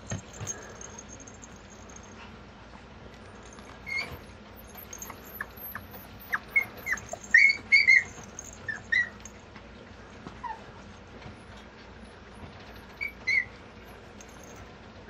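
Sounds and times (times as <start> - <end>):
puppy whining and squeaking: 3.6 - 9.4, 10.4 - 10.8, 12.4 - 14.6.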